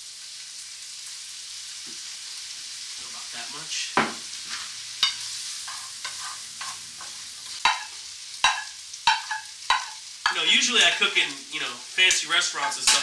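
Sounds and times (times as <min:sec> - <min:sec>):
noodles sizzling in a frying pan: 0:00.0 - 0:13.0
sharp knocks against pan: 0:07.7 - 0:10.0.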